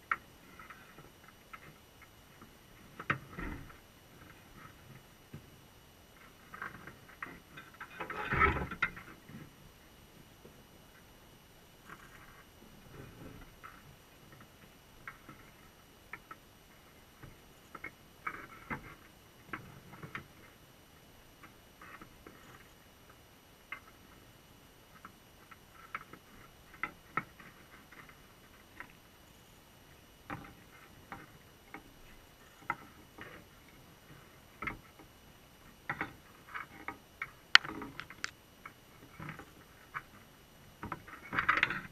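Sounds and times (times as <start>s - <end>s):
crab shells clicking underwater: 35.9s - 38.4s.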